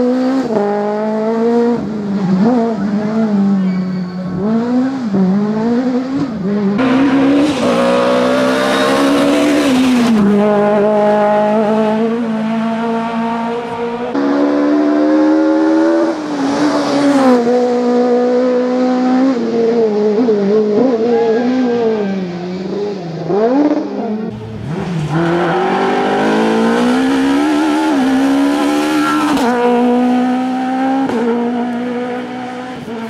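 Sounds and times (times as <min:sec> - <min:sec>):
rally car engine revving: 0:00.0 - 0:33.0
tyre squeal: 0:02.8 - 0:04.4, 0:28.8 - 0:29.4.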